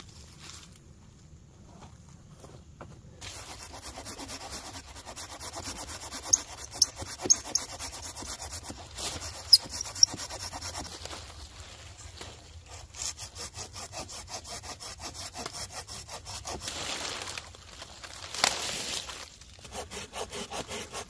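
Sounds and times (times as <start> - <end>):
hand saw cutting branch: 3.2 - 11.1, 12.6 - 17.1, 19.6 - 21.0.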